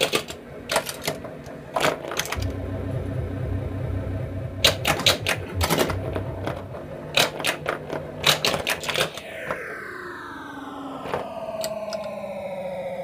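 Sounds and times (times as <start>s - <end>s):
pinball solenoid and relay clacks: 0.0s - 2.5s, 4.6s - 9.2s
electronic tones sweeping downward: 2.4s - 7.3s, 9.1s - 13.0s.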